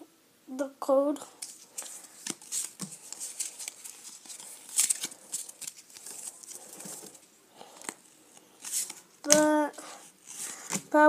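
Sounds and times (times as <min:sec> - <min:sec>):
cards flicked through by hand: 0:08.6 - 0:09.6.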